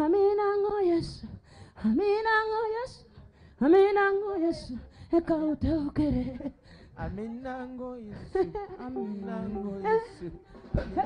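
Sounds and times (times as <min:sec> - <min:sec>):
high voice singing held notes: 0:08.8 - 0:10.6.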